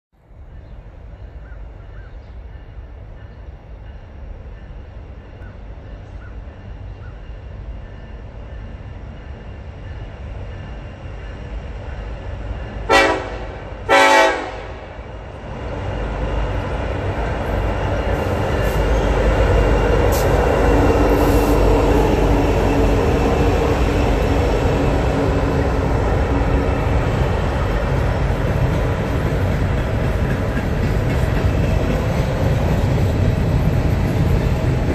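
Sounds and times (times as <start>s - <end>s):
rolling freight cars: 0.2s - 34.9s
diesel locomotive rumble: 0.7s - 34.9s
train horn blasts: 12.8s - 15.0s.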